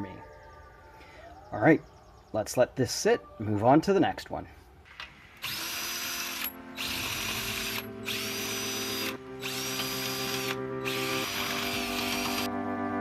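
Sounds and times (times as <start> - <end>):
cordless drill motor whine: 5.4 - 12.5.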